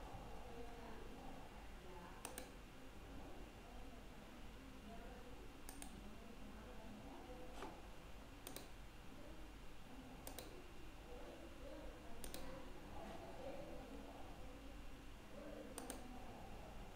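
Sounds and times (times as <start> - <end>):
faint room hum: 0.0 - 16.9
computer mouse clicking: 2.2 - 2.6, 5.7 - 6.0, 8.4 - 8.7, 10.2 - 10.6, 12.2 - 12.6, 15.8 - 16.1.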